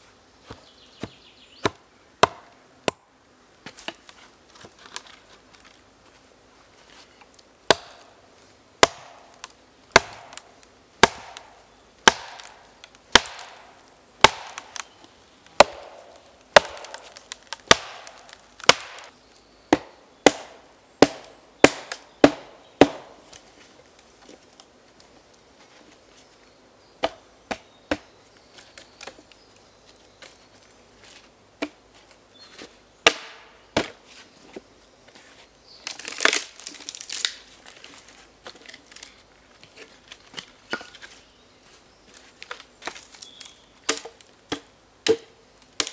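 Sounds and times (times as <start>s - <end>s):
wooden club striking log: 0.5s - 3.0s, 7.7s - 8.0s, 8.8s - 9.3s, 9.9s - 10.4s, 11.0s - 13.6s, 14.2s - 14.8s, 15.6s - 19.1s, 19.7s - 23.2s.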